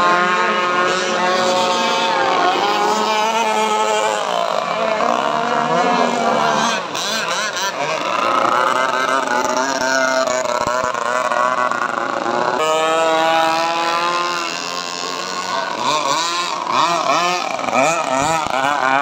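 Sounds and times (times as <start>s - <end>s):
buzzing model boat engines: 0.0s - 19.0s.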